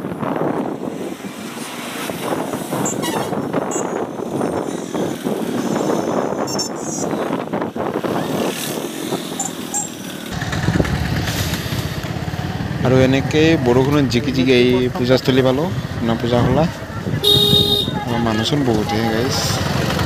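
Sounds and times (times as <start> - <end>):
wind rumbling on microphone: 0.0 - 20.0
tyres on wet road: 0.1 - 6.3, 7.1 - 20.0
short high squeaks: 2.8 - 4.0, 9.4 - 10.0
motorbike engine: 7.8 - 16.0, 16.7 - 20.0.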